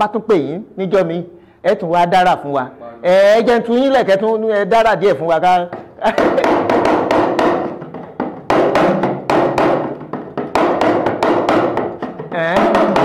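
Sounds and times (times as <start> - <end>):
talking drum strokes: 6.1 - 13.0.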